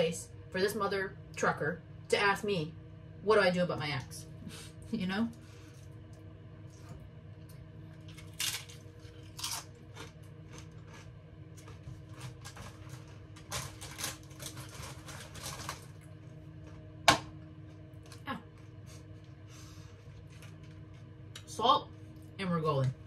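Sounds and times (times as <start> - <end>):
steady low hum: 0.0 - 23.0
crunching tortilla chip: 8.0 - 16.7.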